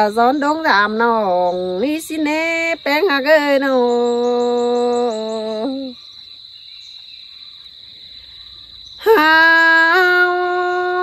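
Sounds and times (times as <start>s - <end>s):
high insect drone: 0.0s - 11.0s
woman singing long held notes: 0.8s - 6.0s, 9.0s - 11.0s.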